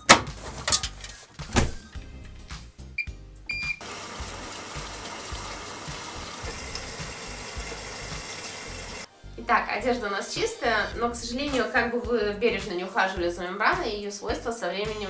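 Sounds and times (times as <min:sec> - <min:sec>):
short beeps from control panel: 0:03.0 - 0:03.8
water rushing into washing machine: 0:03.8 - 0:09.1.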